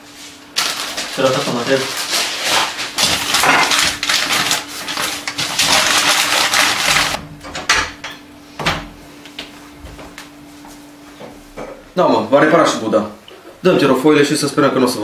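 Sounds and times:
paper rustling: 0.5s - 7.2s.

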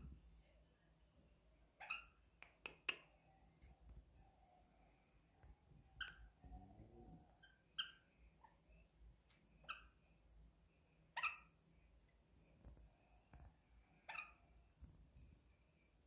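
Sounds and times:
parakeets chirping: 5.9s - 6.4s, 7.4s - 8.7s, 11.1s - 11.6s, 14.0s - 14.4s.

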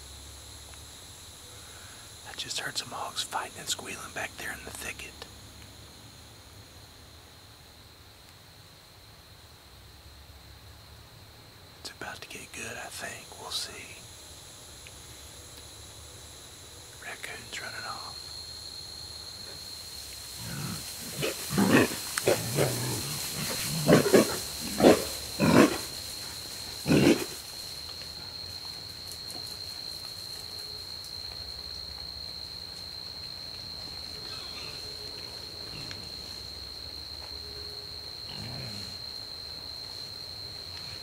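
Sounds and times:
hogs calling: 20.3s - 26.1s, 26.8s - 27.4s.

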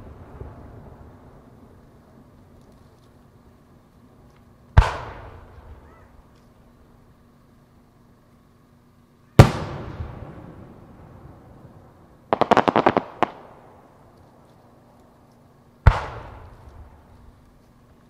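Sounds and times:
firework sharp pops: 4.3s - 6.6s, 9.4s - 10.4s, 12.3s - 14.4s, 15.8s - 17.7s.

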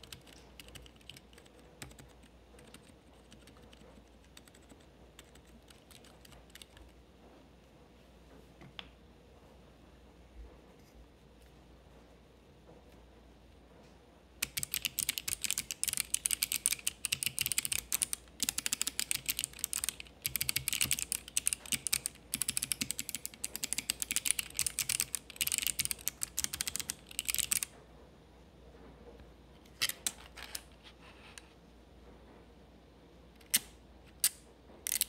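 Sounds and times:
clicky keyboard typing: 0.0s - 6.9s, 14.4s - 27.7s.

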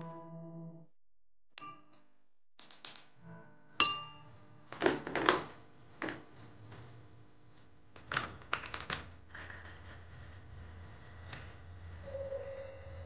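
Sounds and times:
ringing glass clink: 3.8s - 4.2s.

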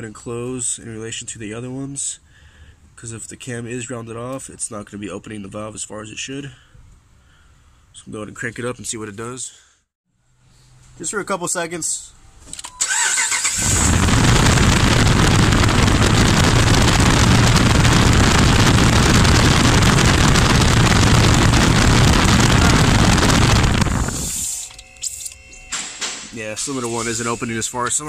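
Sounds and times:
misfiring engine running: 12.9s - 24.5s.

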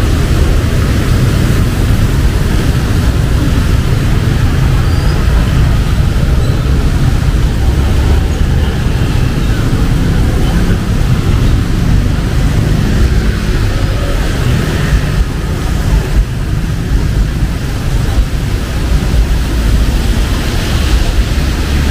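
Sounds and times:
steady rain hiss: 0.0s - 21.9s
traffic rumble on wet street: 0.0s - 21.9s.

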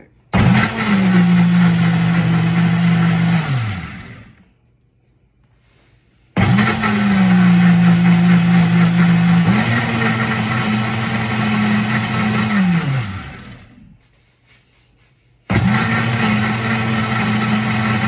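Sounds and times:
blender motor running: 0.3s - 4.4s, 6.4s - 14.0s, 15.5s - 18.0s.

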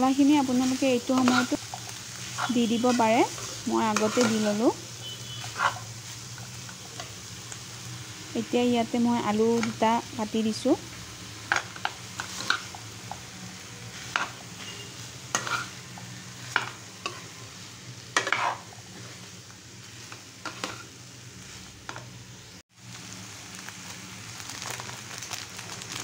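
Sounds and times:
food sizzling: 0.0s - 26.0s
metal spatula scraping pan: 0.6s - 1.6s, 2.2s - 4.6s, 5.3s - 5.9s, 13.9s - 17.4s, 18.2s - 19.2s, 20.0s - 20.9s.

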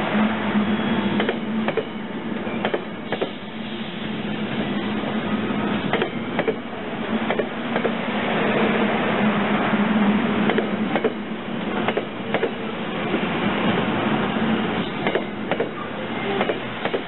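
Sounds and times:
train coaches rumbling past: 0.0s - 17.0s
wheels clicking over rail joints: 15.0s - 17.0s.

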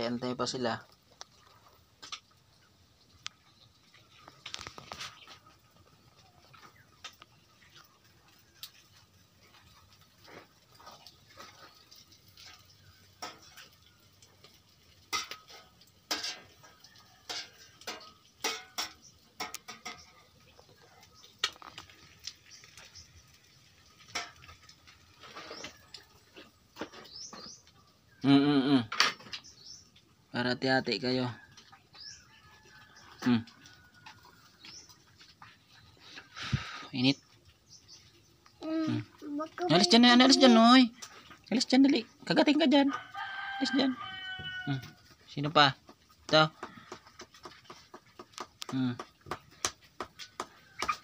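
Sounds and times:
dogs scrabbling and eating: 0.8s - 28.0s, 31.4s - 36.4s, 44.8s - 51.0s.

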